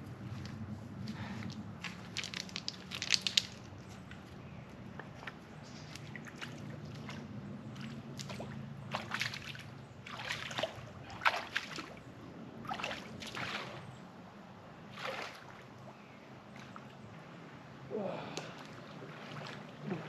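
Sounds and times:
person wading through water: 4.8s - 14.0s, 14.8s - 20.0s.

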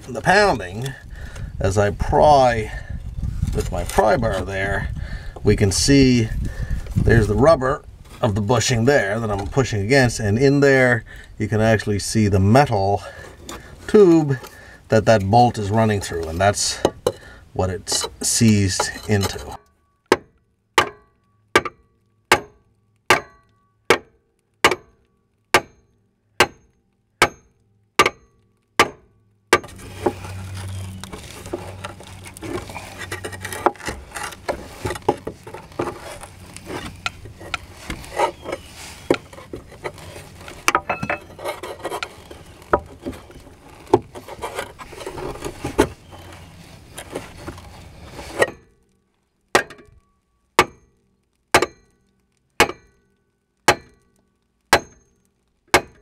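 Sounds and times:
pry bar scraping and clinking: 13.0s - 20.2s, 29.6s - 48.7s.

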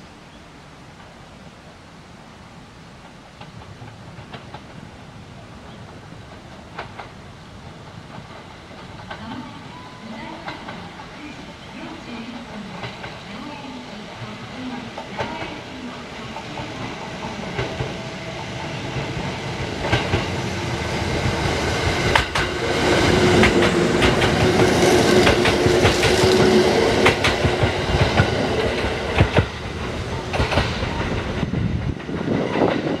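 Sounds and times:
electric train hum: 0.0s - 33.0s
wheels clacking over rail joints: 3.0s - 11.2s, 14.9s - 33.0s.

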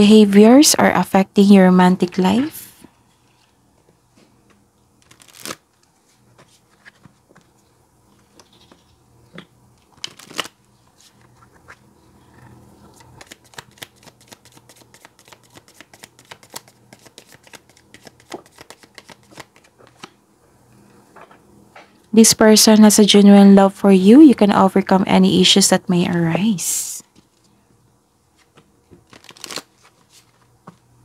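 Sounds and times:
cards shuffling with quick flicking: 5.0s - 7.6s, 13.0s - 20.2s, 28.4s - 30.8s.

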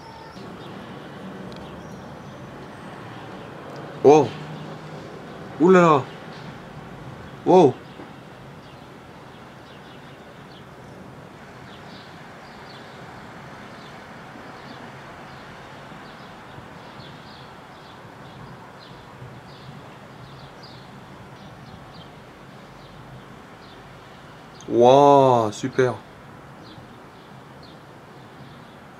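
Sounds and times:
high bird chirps: 0.0s - 0.8s
outdoor background hiss: 0.0s - 28.9s.

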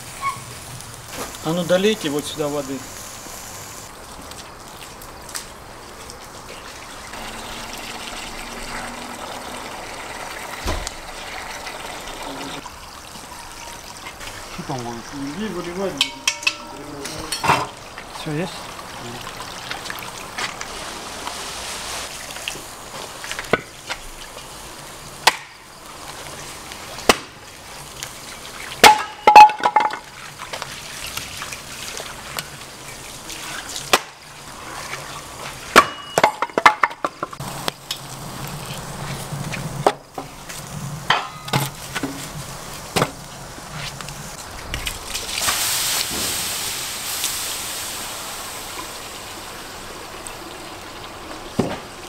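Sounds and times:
steady hiss: 0.0s - 6.4s, 37.2s - 52.0s
axe splitting firewood: 25.2s - 25.5s, 28.8s - 30.0s, 35.7s - 37.1s.

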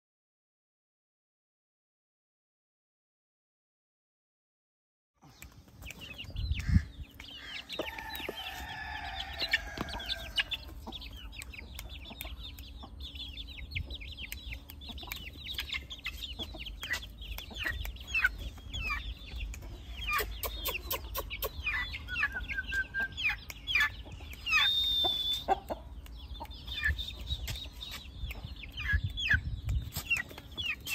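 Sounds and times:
chickens clucking and calling: 5.2s - 30.9s
high chirps: 5.3s - 30.9s
low rumble on microphone: 6.1s - 7.2s.

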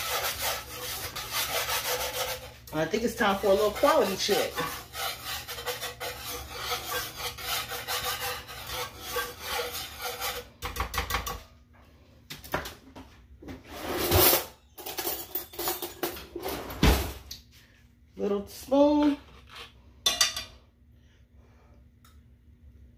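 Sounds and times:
whisk scraping a skillet: 0.0s - 11.4s.

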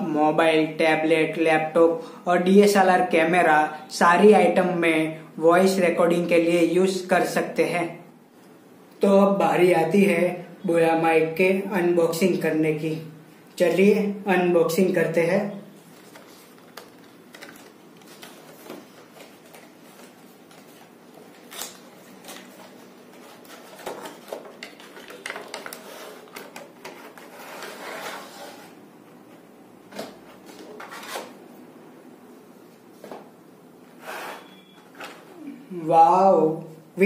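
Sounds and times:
cardboard sliding and scraping: 26.9s - 28.8s, 34.0s - 34.6s.

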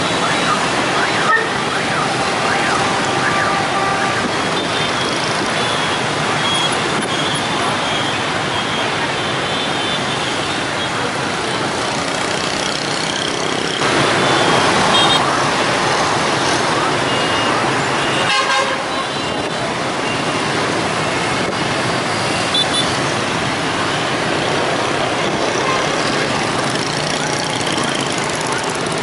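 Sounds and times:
motor scooter and car traffic: 0.0s - 29.0s.

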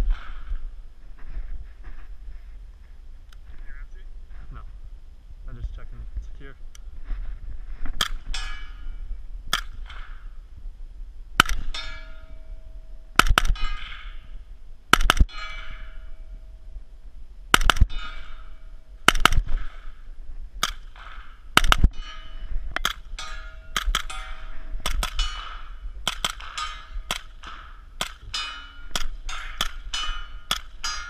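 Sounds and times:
suppressed gunshots: 11.4s - 11.8s, 13.1s - 14.1s, 14.9s - 15.3s, 17.5s - 18.3s, 19.0s - 20.0s, 20.6s - 22.0s, 23.7s - 30.9s
steel target ringing: 11.4s - 14.4s, 15.3s - 16.7s, 17.9s - 19.1s, 20.9s - 31.0s.

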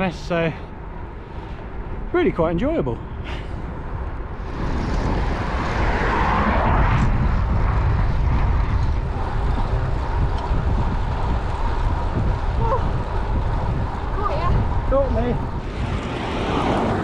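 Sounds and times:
wind buffeting microphone: 0.0s - 17.0s
tyre noise on tarmac: 3.9s - 17.0s.

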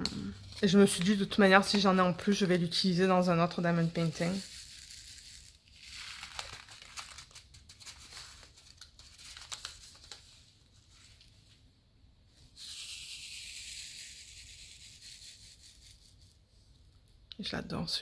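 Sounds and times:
plastic bags crinkling: 3.5s - 10.2s.

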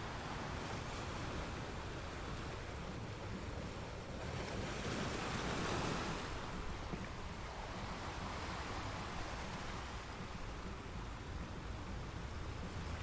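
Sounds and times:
sea surf against rocks: 0.0s - 13.0s.

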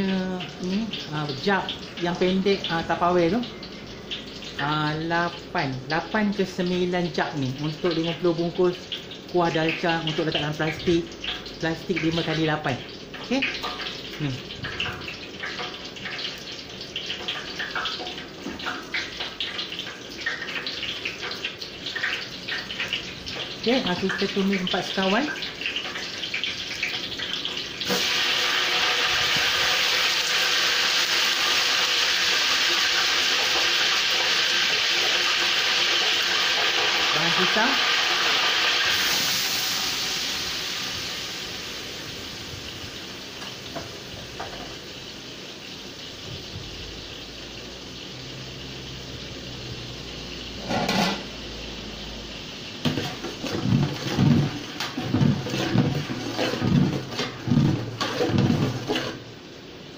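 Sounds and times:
spices sizzling in hot oil: 0.0s - 59.9s
spoon scraping and knocking pot: 50.6s - 51.3s, 52.8s - 59.2s.

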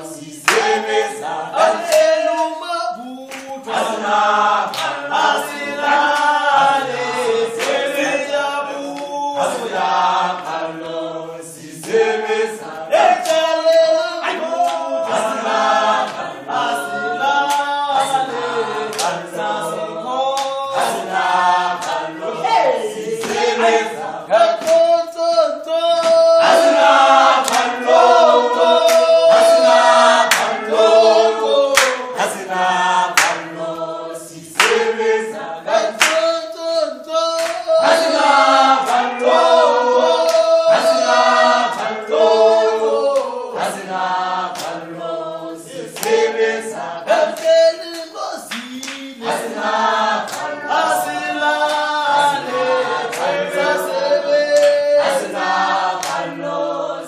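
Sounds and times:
group singing in harmony: 0.0s - 57.0s
hand claps: 0.3s - 8.1s, 8.8s - 9.2s, 11.6s - 16.3s, 17.3s - 19.3s, 20.3s - 22.1s, 23.0s - 23.6s, 24.3s - 28.2s, 28.8s - 29.6s, 30.2s - 31.0s, 31.7s - 32.5s, 33.1s - 39.4s, 40.2s - 41.1s, 41.7s - 42.0s, 43.1s - 44.9s, 45.9s - 46.3s, 47.1s - 53.5s, 54.3s - 56.4s.

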